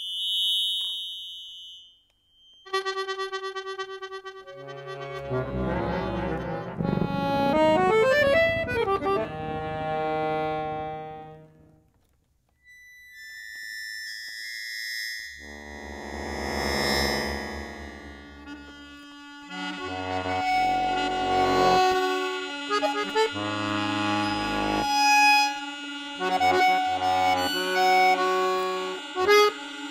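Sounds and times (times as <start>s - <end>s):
accordion chords and runs: 2.7s - 11.8s, 15.4s - 29.9s
low chord: 4.5s - 11.7s.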